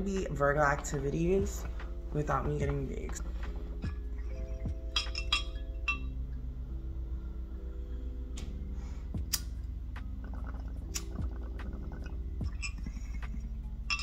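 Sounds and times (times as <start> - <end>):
water gurgling in bong: 10.2 - 14.0.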